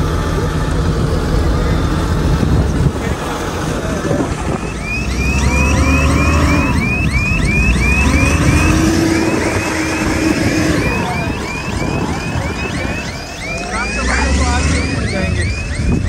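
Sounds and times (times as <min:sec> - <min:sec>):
diesel engine rumble: 0:00.0 - 0:16.0
high chirping: 0:04.4 - 0:16.0.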